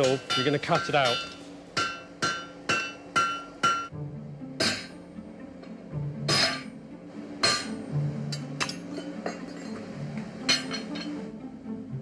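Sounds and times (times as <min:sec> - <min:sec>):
hammer striking steel on anvil: 0:00.0 - 0:03.9, 0:04.6 - 0:05.0, 0:06.2 - 0:06.8, 0:07.4 - 0:09.8, 0:10.4 - 0:11.2.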